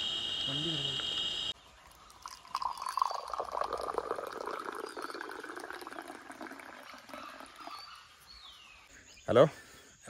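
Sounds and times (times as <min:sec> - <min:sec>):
faint high chirps: 0:00.0 - 0:05.6
water trickling with splashes: 0:01.6 - 0:08.9.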